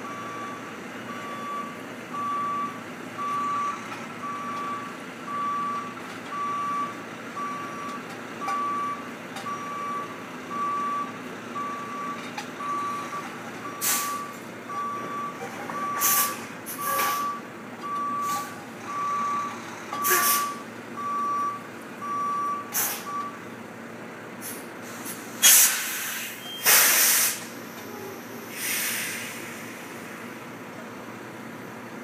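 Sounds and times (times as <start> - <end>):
truck reverse alarm beeping: 0.0 - 23.6, 26.4 - 26.9
air brakes hissing: 13.8 - 14.3, 16.0 - 17.4, 18.2 - 18.6, 20.0 - 20.6, 22.6 - 23.1, 24.4 - 30.3.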